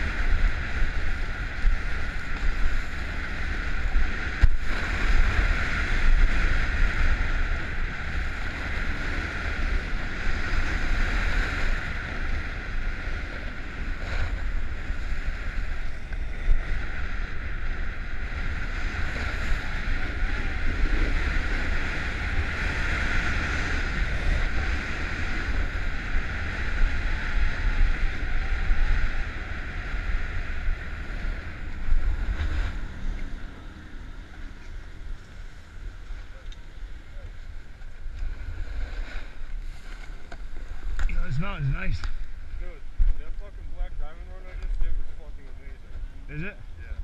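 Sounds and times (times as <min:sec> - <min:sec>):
wind rushing over camera: 0:00.0 - 0:47.0
skis scraping over snow: 0:37.8 - 0:42.7.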